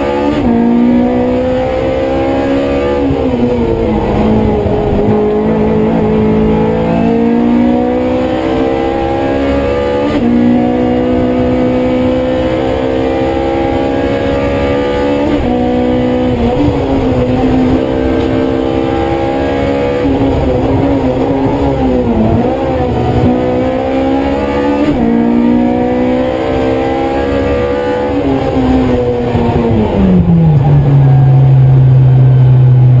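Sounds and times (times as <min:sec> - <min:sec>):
car engine at full throttle: 0:00.0 - 0:33.0.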